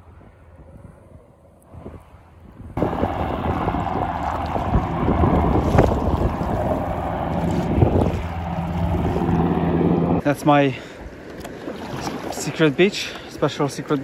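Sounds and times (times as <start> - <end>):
wind buffeting microphone: 0.0 - 10.3
water splashing: 2.8 - 14.0.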